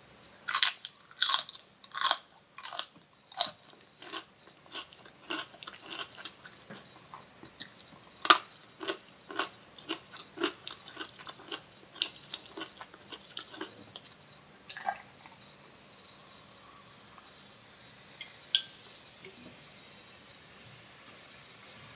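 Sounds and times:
chewing raw vegetable crunches: 0.5 - 15.0.

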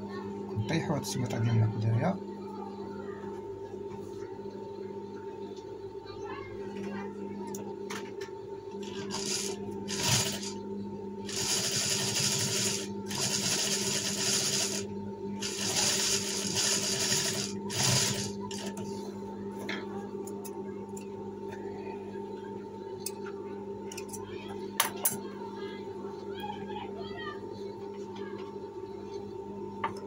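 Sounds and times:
sewing machine stitching: 8.8 - 10.5, 11.3 - 14.8, 15.4 - 18.7
sewing machine motor humming: 8.8 - 10.6, 11.3 - 18.8.

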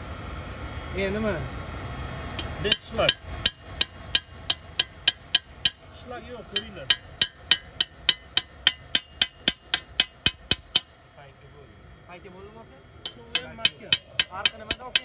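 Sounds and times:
chipping hammer tapping on steel: 2.4 - 5.9, 6.5 - 10.9, 13.0 - 15.0.

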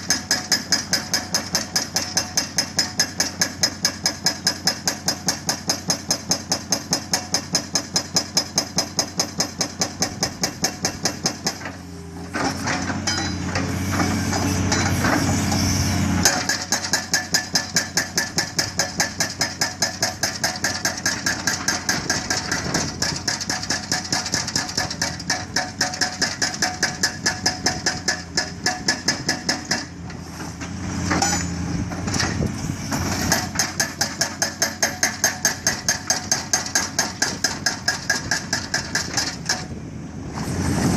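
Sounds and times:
hydraulic breaker pounding rock: 0.0 - 40.9
diesel engine working: 11.6 - 16.8, 26.9 - 37.8, 38.4 - 40.9.

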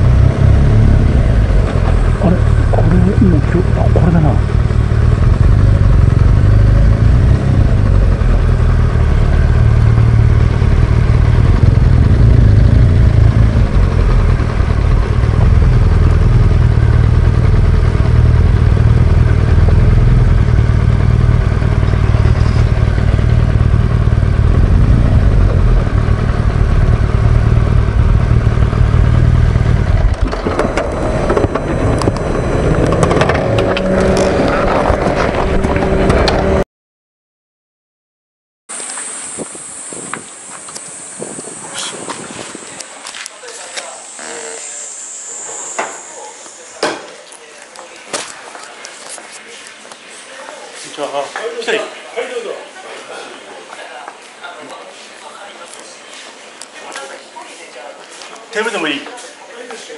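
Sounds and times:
steady tones: 0.0 - 36.5, 39.1 - 48.1
motorcycle engine rumbling: 0.0 - 36.6, 38.7 - 50.8
wind on microphone: 39.0 - 43.0.

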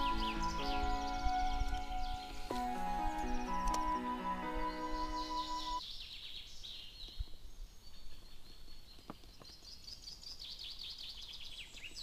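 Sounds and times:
background music: 0.0 - 5.8
birds chirping: 0.0 - 12.0.

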